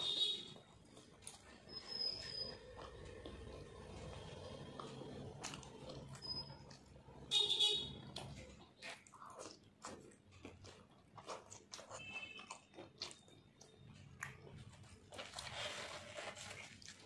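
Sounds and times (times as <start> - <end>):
person chewing: 0.0 - 7.3, 7.9 - 17.0.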